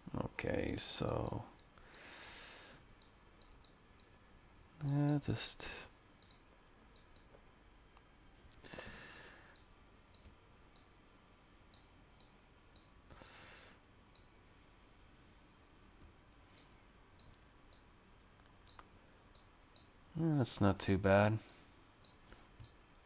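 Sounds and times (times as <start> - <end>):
computer mouse clicks: 2.9 - 4.2, 6.2 - 7.4, 9.5 - 10.9, 11.7 - 13.4, 16.0 - 19.9, 22.0 - 23.0.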